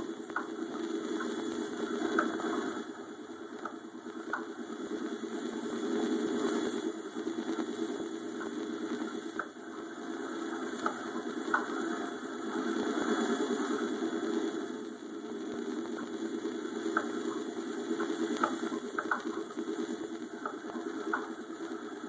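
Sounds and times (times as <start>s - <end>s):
faint ticks: 0.2s - 2.9s, 3.5s - 5.8s, 7.2s - 9.6s, 10.2s - 12.2s, 14.2s - 22.0s.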